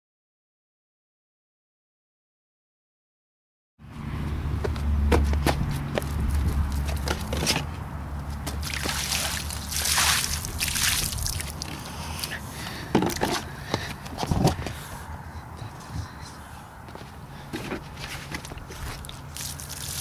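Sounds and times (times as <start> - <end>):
water splashing on concrete: 8.4 - 12.4, 19.0 - 20.0
water trickling and dripping: 8.7 - 12.3, 19.0 - 20.0.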